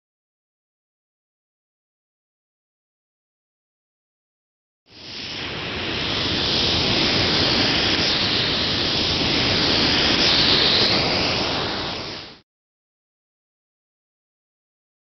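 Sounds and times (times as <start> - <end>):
steady rushing noise: 4.9 - 12.4.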